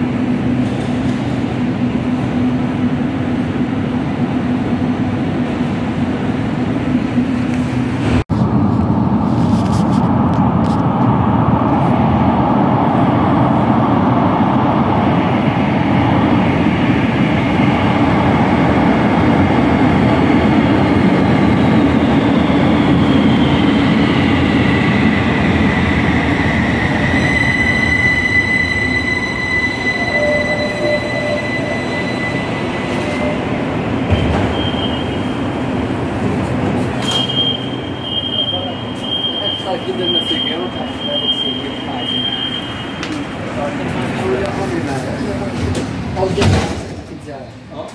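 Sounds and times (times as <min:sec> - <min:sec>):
train high whine: 0:00.0 - 0:45.4
train rumble: 0:00.0 - 0:47.9.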